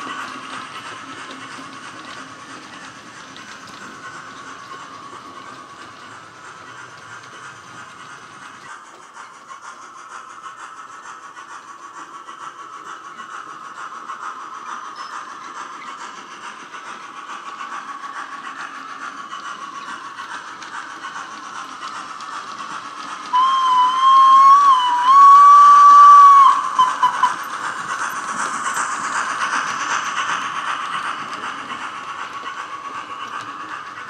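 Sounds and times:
steam locomotive exhaust chuffs: 0.0 - 34.0
loud train whistle blast: 23.3 - 27.4.

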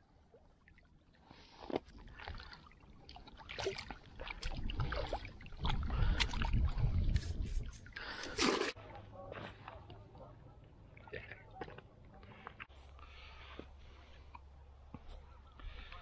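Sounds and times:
water splashing around rocks: 1.8 - 9.7
wind rumble on microphone: 4.3 - 8.1.

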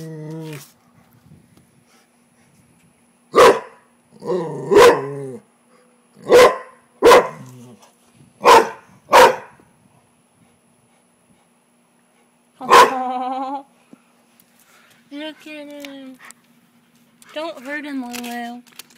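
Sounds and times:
dog barking: 3.4 - 3.8, 4.7 - 5.1, 6.2 - 7.4, 8.4 - 9.6, 12.6 - 13.0.

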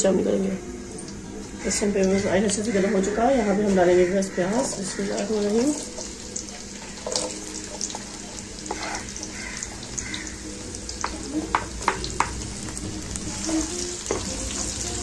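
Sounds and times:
onions sizzling in hot oil: 1.7 - 15.0
wooden spatula knocking: 11.0 - 12.4.

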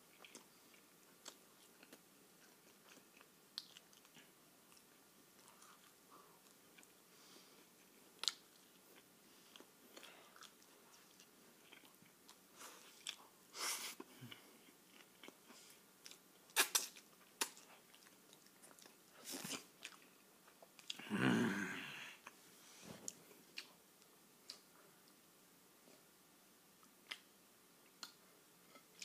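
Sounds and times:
person chewing food: 0.1 - 21.0, 23.1 - 23.8.

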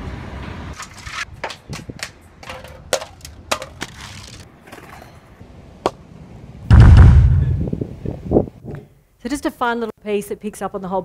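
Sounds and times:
plastic bottle clattering down steps: 2.4 - 4.3
loud low boom: 6.7 - 7.8.

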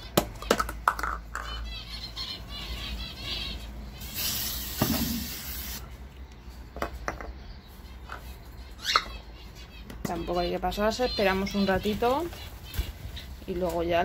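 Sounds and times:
spray can hissing: 4.0 - 5.9.

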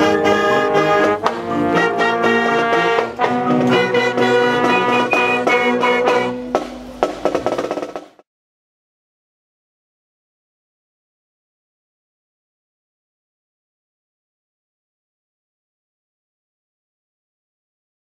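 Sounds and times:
wind band playing a tune: 0.0 - 8.2
drum hits: 1.0 - 8.2.

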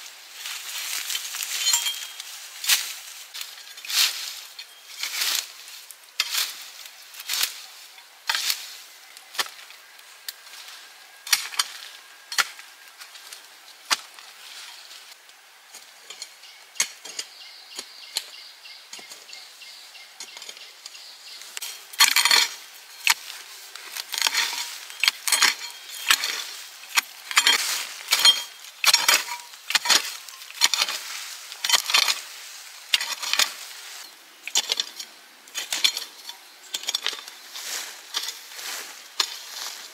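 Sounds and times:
metal utensil clinking on cookware: 1.5 - 2.2.

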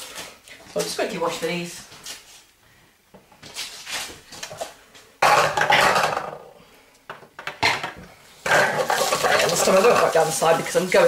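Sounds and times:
dishes clattering in sink: 5.2 - 6.4, 7.5 - 10.3.

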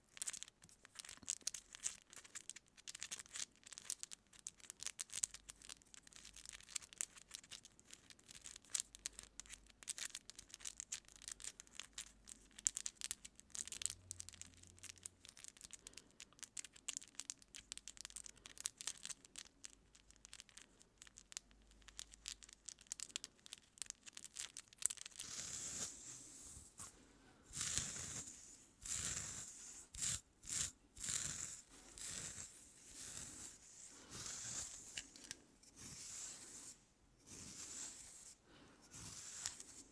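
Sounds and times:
fingernails scratching through hair: 25.2 - 26.5, 27.5 - 39.9
wooden comb strokes through hair: 27.5 - 39.9.

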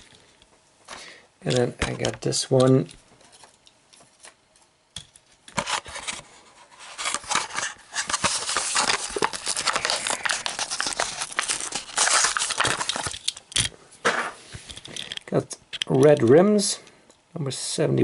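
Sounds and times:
blister pack crinkling and tearing: 6.8 - 13.5.

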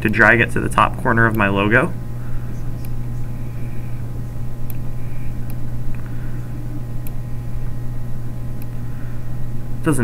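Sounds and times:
low electrical hum: 0.0 - 10.0.

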